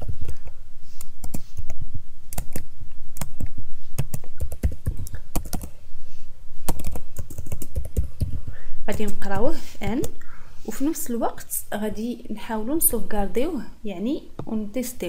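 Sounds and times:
computer keyboard typing: 0.0s - 5.7s, 6.7s - 8.4s.

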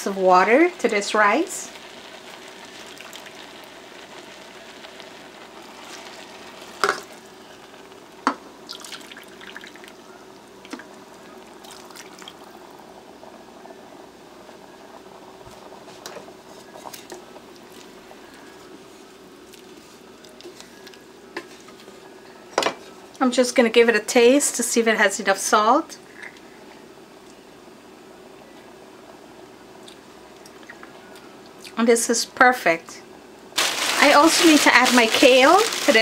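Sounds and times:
faint hum: 0.0s - 36.0s
water pouring into a pot: 0.4s - 10.0s, 10.6s - 13.2s, 33.6s - 36.0s
wooden spoon stirring wet rice: 33.6s - 36.0s.

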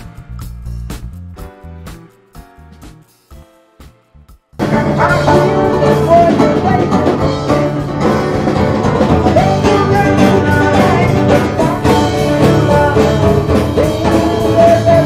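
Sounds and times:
drum kit steady beat: 0.0s - 15.0s
guitar: 0.0s - 15.0s
person singing: 4.6s - 15.0s.

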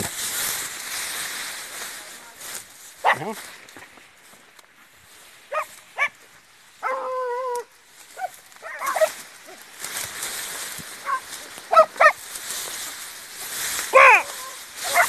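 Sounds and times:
hunting dogs barking and baying: 3.0s - 3.6s, 5.4s - 9.8s, 10.9s - 12.8s, 13.6s - 15.0s.

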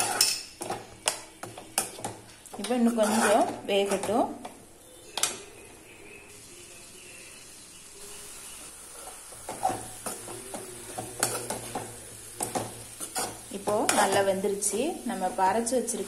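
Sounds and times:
metal spoon scraping pan: 0.0s - 4.4s, 8.9s - 15.3s
vegetables sizzling in pan: 0.0s - 16.0s.

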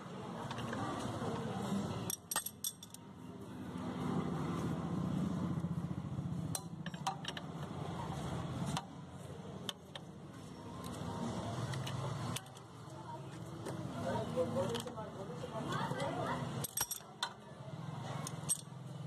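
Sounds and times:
metal tools clinking: 2.1s - 3.0s, 6.6s - 7.5s, 16.6s - 17.3s, 18.2s - 18.7s.

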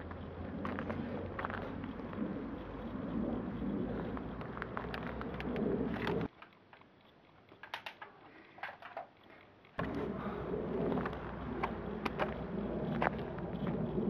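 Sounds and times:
steady low rumble: 0.0s - 6.3s, 9.8s - 14.0s.

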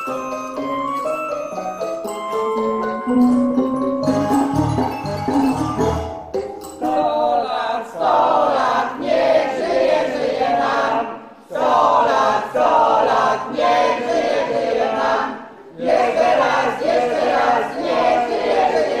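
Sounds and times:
struck musical notes: 0.0s - 7.2s
group of voices singing: 6.8s - 19.0s.

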